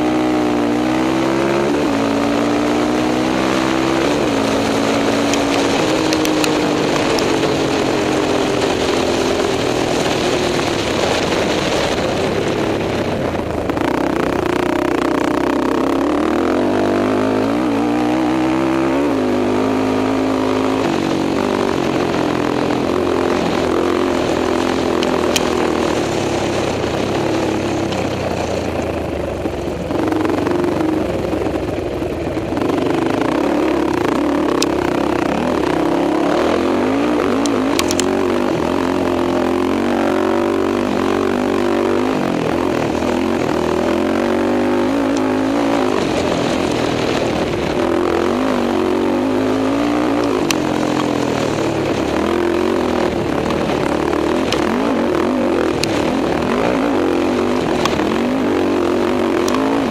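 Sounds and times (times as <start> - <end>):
quad engine revving: 0.0 - 59.9
sharp ticks: 4.2 - 7.4, 29.8 - 38.6, 53.4 - 54.9, 55.7 - 56.1.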